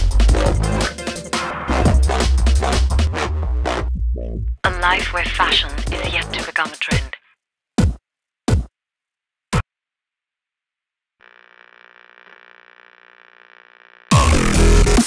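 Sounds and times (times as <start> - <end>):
electronic dance beat: 0.0 - 3.2, 4.7 - 7.2.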